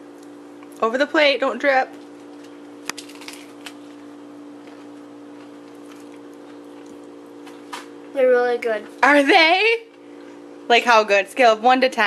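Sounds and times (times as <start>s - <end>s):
low steady hum: 0.0s - 12.0s
child crunching lettuce: 2.2s - 4.0s, 4.6s - 7.7s.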